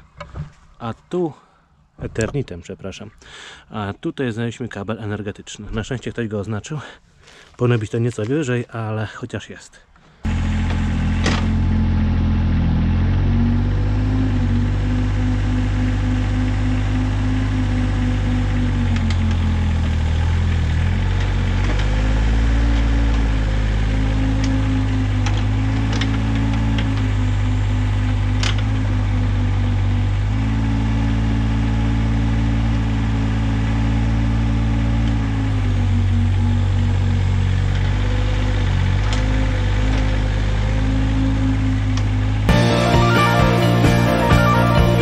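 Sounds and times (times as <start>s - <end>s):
excavator diesel engine: 10.2s - 45.0s.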